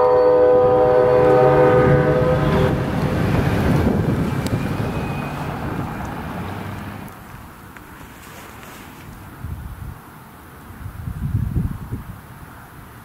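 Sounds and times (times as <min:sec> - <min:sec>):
low rumble: 0:00.0 - 0:06.6
locomotive air horn: 0:00.0 - 0:07.0.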